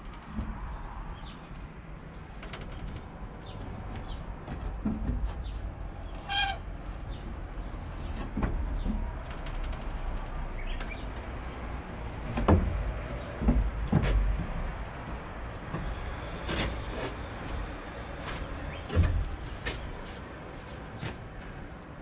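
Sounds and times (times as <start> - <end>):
hand tools knocking on wood: 12.2 - 16.0.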